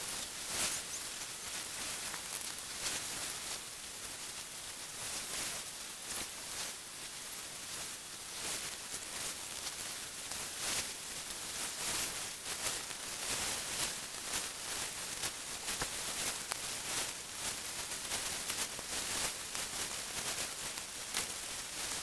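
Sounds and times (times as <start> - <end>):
steady high hiss: 0.0 - 22.0
crackling clicks: 1.8 - 3.1.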